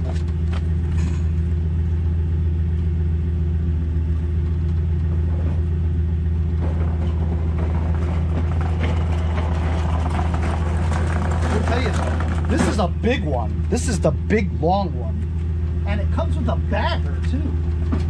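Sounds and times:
van engine idling: 0:00.0 - 0:18.0
knocks and rattles: 0:06.4 - 0:13.8.

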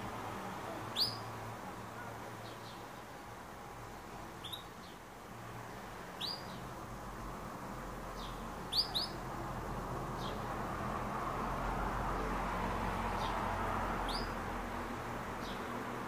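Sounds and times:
canary chirping: 0:00.7 - 0:01.3, 0:04.4 - 0:05.0, 0:06.2 - 0:06.7, 0:08.1 - 0:09.3, 0:14.0 - 0:14.4.

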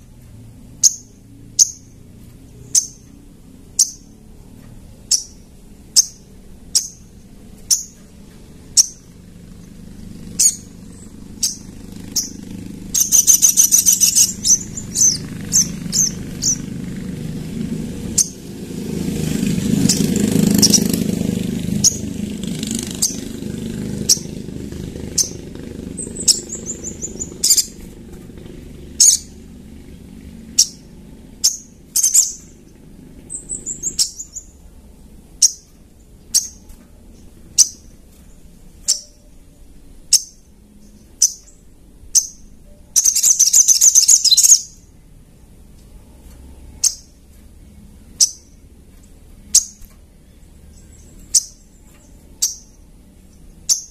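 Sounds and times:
bird chipping and trilling: 0:00.8 - 0:04.2, 0:05.0 - 0:28.0, 0:28.8 - 0:34.7, 0:35.3 - 0:44.9, 0:46.7 - 0:53.9.

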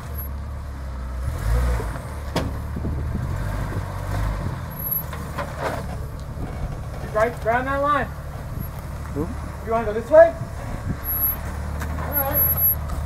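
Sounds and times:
engine running low: 0:00.0 - 0:13.0
knocks on boulders: 0:02.3 - 0:03.0.

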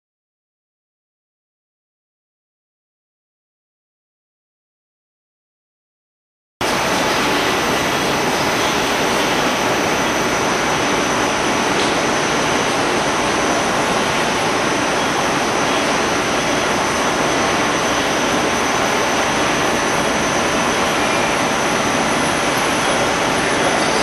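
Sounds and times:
factory machinery rushing noise: 0:06.6 - 0:24.0.

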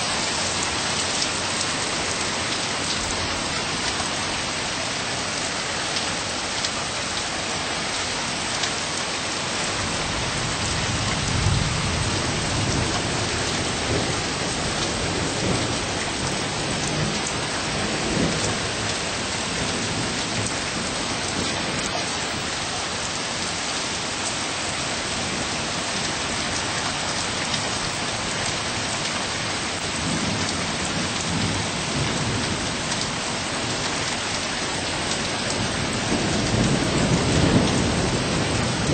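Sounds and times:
rain falling: 0:00.0 - 0:38.9.

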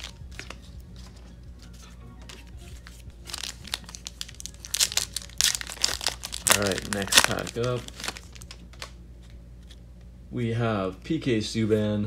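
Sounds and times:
foil wrapper crinkling and tearing: 0:00.0 - 0:00.7, 0:02.8 - 0:09.0
quiet background music: 0:00.0 - 0:12.0.

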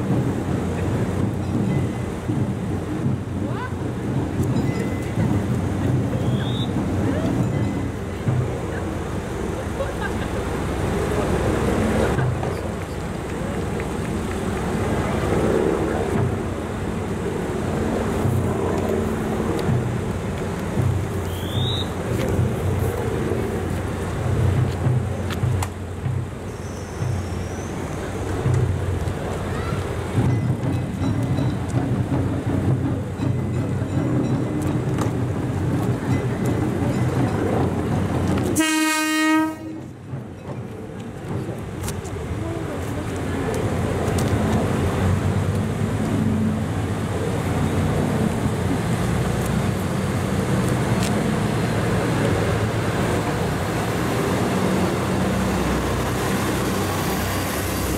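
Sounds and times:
diesel engines idling: 0:00.0 - 0:39.2, 0:39.9 - 0:57.9
train horn blast: 0:38.6 - 0:39.9.

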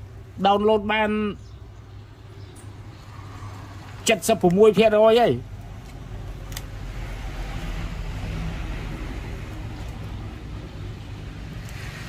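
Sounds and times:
passing road vehicle hum: 0:01.4 - 0:04.3, 0:05.4 - 0:12.0.

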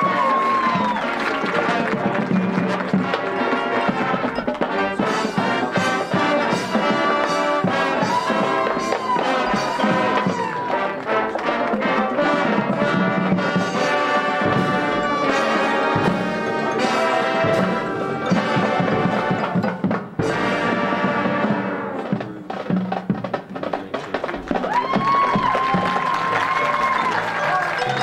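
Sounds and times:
brass section playing: 0:00.0 - 0:22.2
percussion ensemble: 0:00.0 - 0:28.0.

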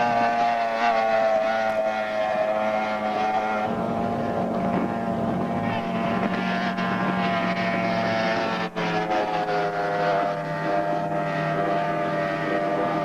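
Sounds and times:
outboard motor droning: 0:00.0 - 0:13.0.

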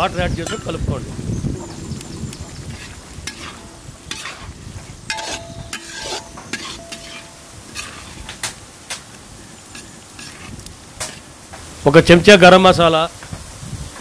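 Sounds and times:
gravy sizzling: 0:00.0 - 0:14.0
metal spatula scraping a pan: 0:02.5 - 0:11.3.

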